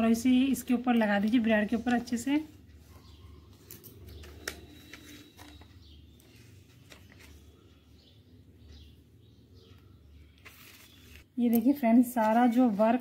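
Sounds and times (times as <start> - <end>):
paper clicks and crinkles: 3.5 - 7.7, 10.3 - 11.3.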